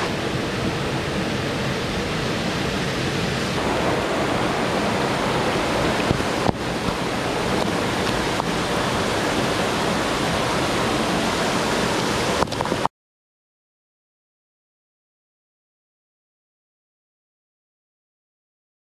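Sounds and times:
waterfall rushing into pool: 0:00.0 - 0:12.9.

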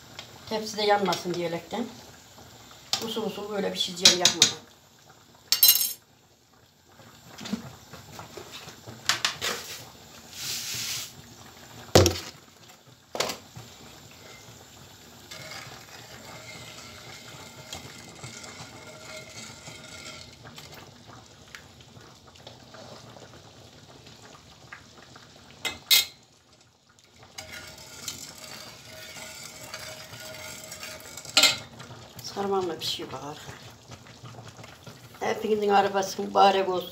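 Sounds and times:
syrup simmering: 0:00.0 - 0:36.9
metal ladle clinking on pots: 0:25.6 - 0:26.2, 0:27.4 - 0:31.7.

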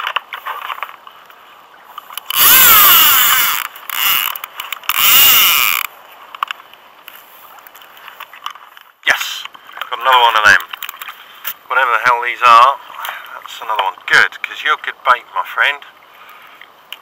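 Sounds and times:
fishing reel whirring: 0:02.3 - 0:05.9.

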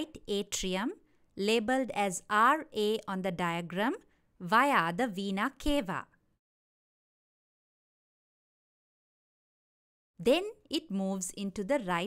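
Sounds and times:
woman narrating: 0:00.0 - 0:06.2, 0:10.2 - 0:12.0.

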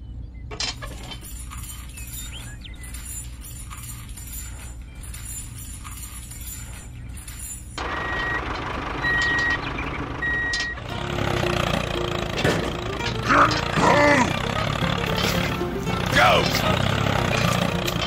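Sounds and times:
vehicle noise: 0:00.0 - 0:18.0
reversing alarm beeping: 0:06.7 - 0:11.0.

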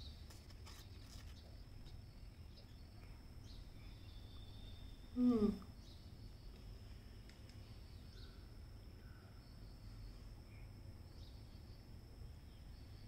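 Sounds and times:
woman humming with full mouth: 0:05.2 - 0:05.7.

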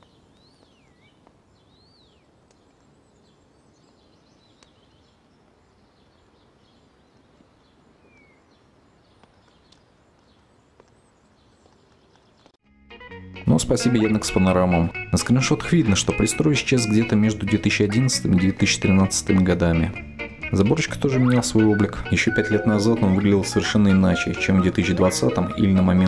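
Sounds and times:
low steady hiss: 0:00.0 - 0:12.5
birds chirping: 0:00.0 - 0:12.6, 0:13.5 - 0:26.0
faint ticks: 0:09.2 - 0:11.0.

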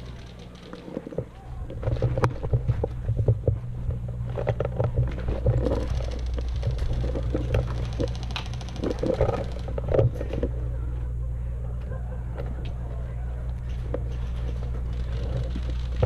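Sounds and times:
knocks and rattles of movement: 0:00.0 - 0:11.2, 0:13.5 - 0:16.0
steady low rumble: 0:00.0 - 0:16.0
fast even ticking: 0:05.6 - 0:09.9.

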